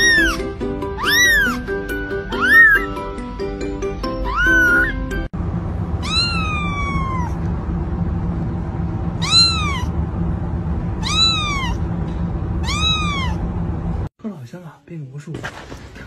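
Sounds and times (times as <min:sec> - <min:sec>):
kitten meowing: 0:00.0 - 0:03.1, 0:04.2 - 0:05.0, 0:06.0 - 0:07.4, 0:09.2 - 0:09.9, 0:11.0 - 0:11.8, 0:12.6 - 0:13.4
soft music: 0:00.0 - 0:05.3
low steady hum: 0:05.3 - 0:14.1.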